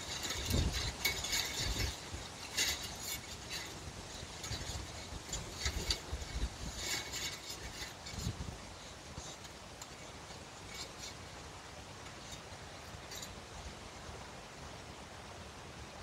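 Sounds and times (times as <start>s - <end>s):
wind gusting: 0.0s - 9.4s
light metallic clinks: 0.0s - 11.4s, 12.0s - 13.7s.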